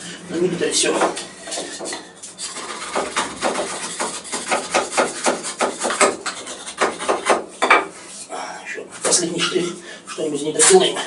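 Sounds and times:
knife scraping wooden block: 1.4 - 8.2.

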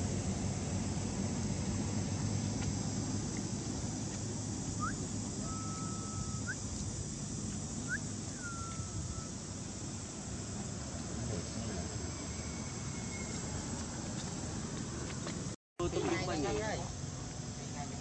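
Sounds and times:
low outdoor rumble: 0.0 - 18.0
whistled animal calls: 4.8 - 6.7, 7.8 - 9.4.

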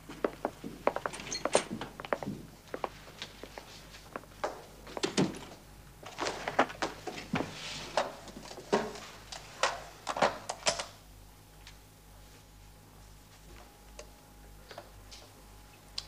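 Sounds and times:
paper rustle: 6.0 - 9.2.

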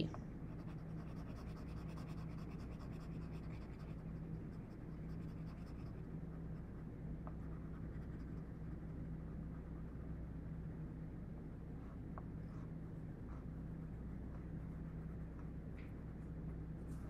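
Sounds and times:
low electrical hum: 0.0 - 17.0
pencil shading on paper: 0.5 - 10.1.

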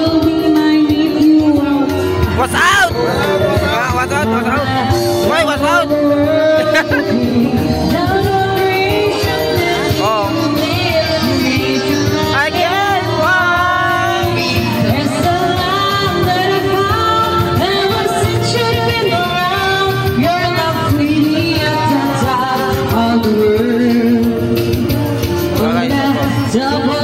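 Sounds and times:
steady bass notes: 0.0 - 27.0.

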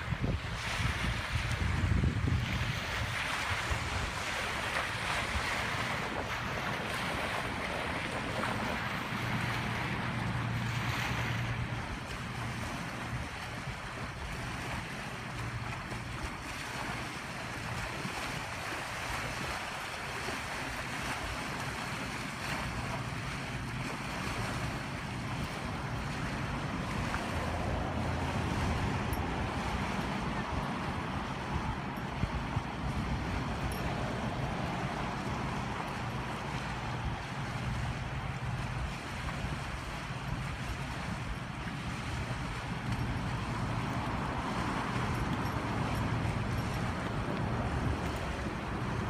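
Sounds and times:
wind blowing on microphone: 0.0 - 14.9
waves washing against rocky shore: 0.0 - 49.0.

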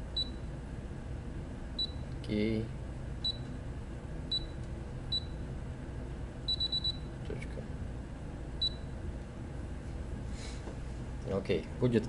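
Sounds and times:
short high control panel beeps: 6.5 - 7.1.

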